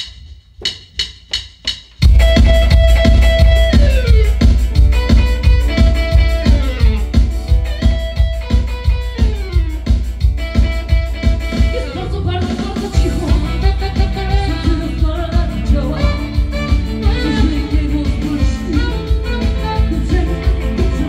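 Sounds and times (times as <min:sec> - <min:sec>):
drum beat: 0:00.0 - 0:21.0
keyboard lines: 0:02.0 - 0:21.0
woman singing: 0:11.6 - 0:21.0.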